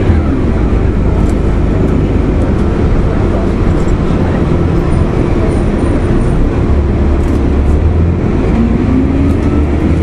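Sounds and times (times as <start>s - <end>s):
bus diesel engine rumble: 0.0s - 10.0s.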